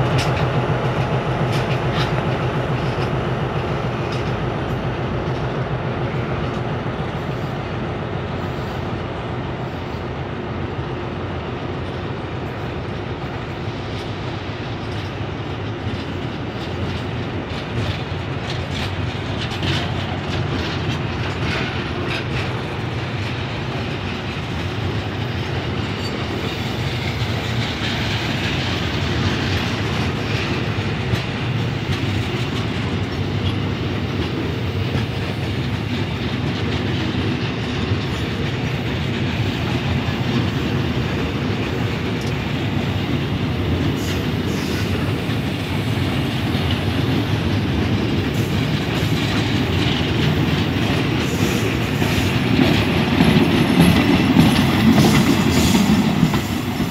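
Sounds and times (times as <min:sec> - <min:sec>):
train wheels rumbling on rails: 0:00.0 - 0:56.9
wheels clicking over rail joints: 0:00.0 - 0:56.9.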